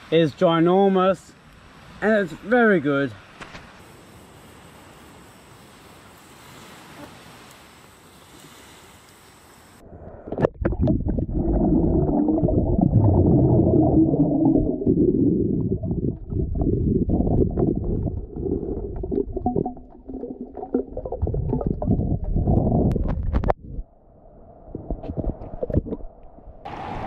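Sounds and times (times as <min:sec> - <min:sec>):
underwater swimming rumble: 0:09.9 - 0:26.8
underwater bubbling and pops: 0:10.2 - 0:23.8, 0:24.7 - 0:26.1.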